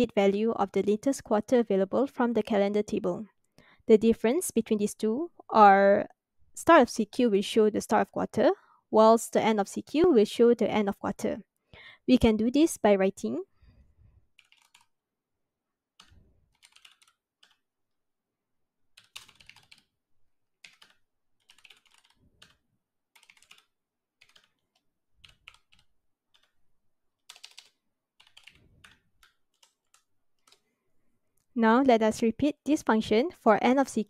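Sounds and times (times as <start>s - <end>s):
quiet keyboard typing: 14.3s - 15.0s, 15.9s - 17.7s, 18.9s - 20.0s, 20.6s - 30.7s.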